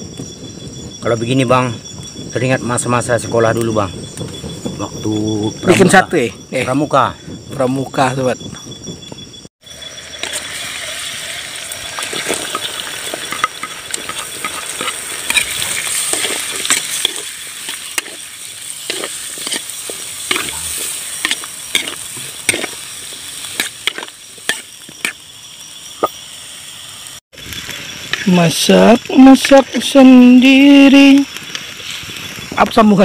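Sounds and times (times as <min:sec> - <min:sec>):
vegetables sizzling in wok: 0:09.6 - 0:33.0
metal spatula scraping pan: 0:13.2 - 0:22.8.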